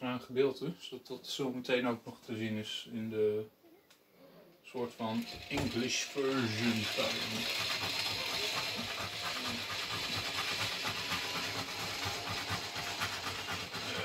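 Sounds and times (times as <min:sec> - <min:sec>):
scratch-off coating scraped: 0:05.7 - 0:14.0.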